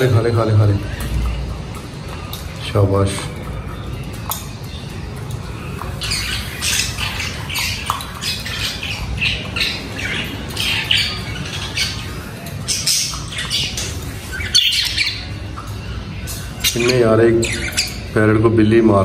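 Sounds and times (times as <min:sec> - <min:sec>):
budgerigars chattering and squawking: 0:04.2 - 0:19.0.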